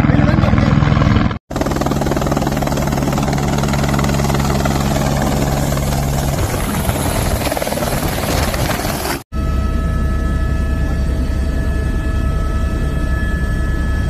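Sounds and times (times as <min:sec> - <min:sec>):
helicopter rotor chopping: 0:00.0 - 0:09.3.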